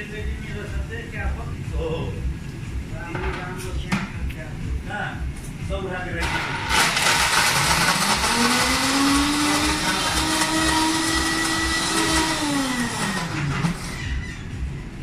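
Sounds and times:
background music beat: 0.0 - 15.0
blender motor whirring: 6.2 - 14.3.

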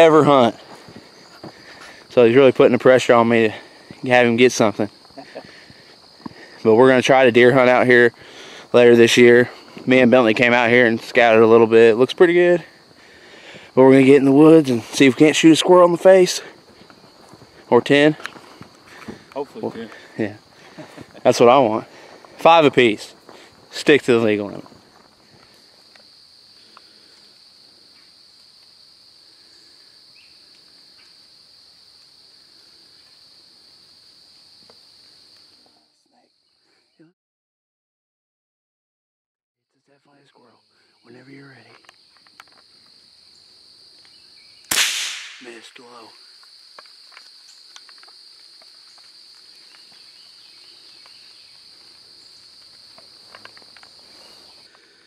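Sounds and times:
high-pitched insect chorus: 0.0 - 37.1, 39.7 - 55.0
faint snap: 44.7 - 45.5.

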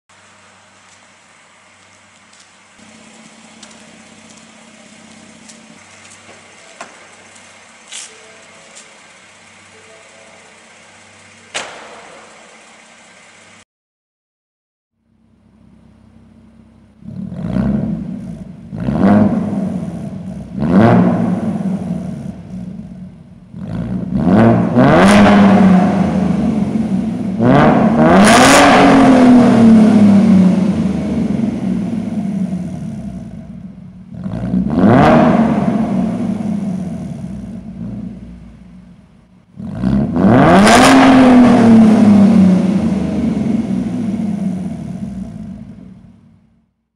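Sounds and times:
rumbling engine idle: 0.1 - 13.6, 15.0 - 20.6, 21.2 - 24.2, 29.8 - 34.7, 35.7 - 39.8, 42.4 - 46.7
car exhaust revving: 0.2 - 9.8, 15.0 - 46.7.

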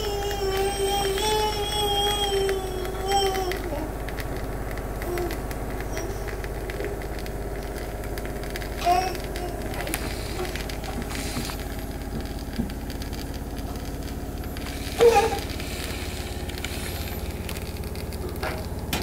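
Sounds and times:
baby crying: 0.0 - 3.9, 8.8 - 11.2, 15.0 - 15.5
steady low hum: 0.0 - 19.0.

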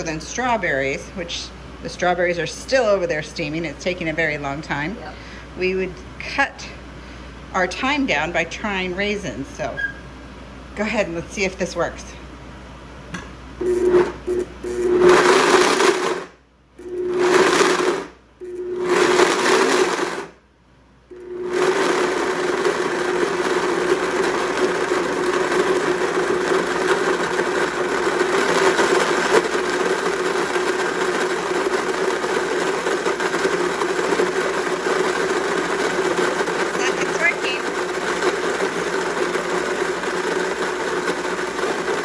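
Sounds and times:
electric blender running: 13.6 - 20.4, 21.1 - 42.0.

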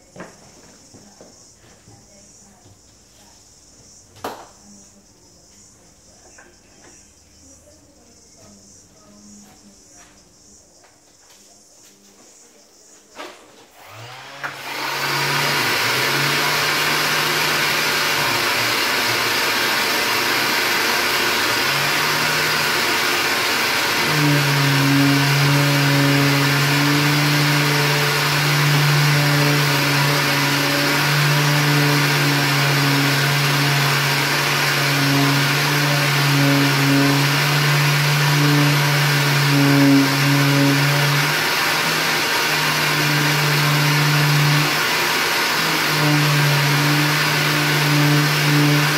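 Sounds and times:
shop vacuum running: 13.2 - 48.9
electric sander motor hum: 13.8 - 48.9.

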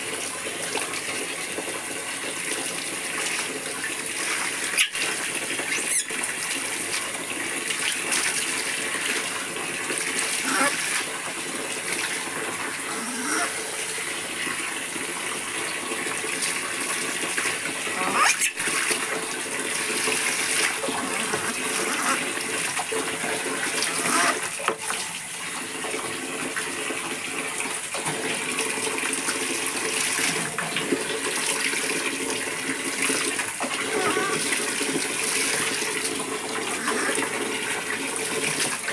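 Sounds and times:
water splashing on concrete: 3.0 - 12.2.

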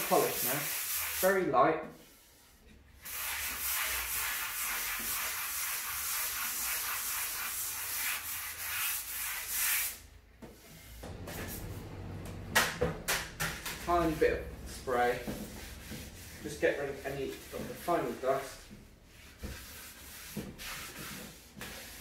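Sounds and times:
sanding sponge rubbing on wood: 0.0 - 1.4, 3.0 - 10.0, 13.6 - 22.0.

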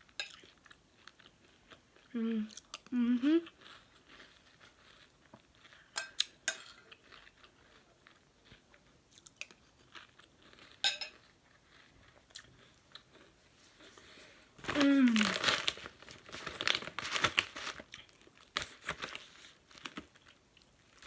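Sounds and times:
chewing crunchy cereal: 0.0 - 21.0
person humming: 2.1 - 3.5, 14.7 - 15.4
spoon clinking on bowl: 10.8 - 11.2.

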